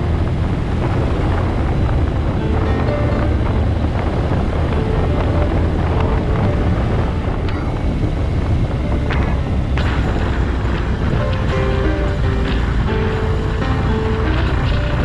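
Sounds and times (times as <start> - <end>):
motorcycle engine running: 0.0 - 15.0
wind rushing over microphone: 0.0 - 15.0.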